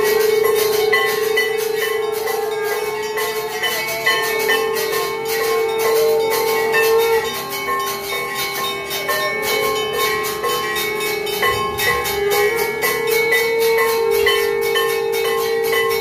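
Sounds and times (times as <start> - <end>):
bells clanging rapidly: 0.0 - 16.0.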